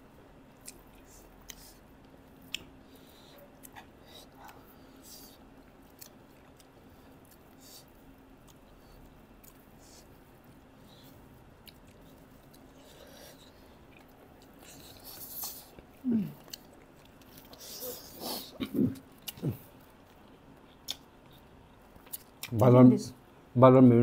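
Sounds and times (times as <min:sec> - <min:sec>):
chewing and lip-smacking: 0:00.5 - 0:22.6
person humming: 0:16.0 - 0:16.4.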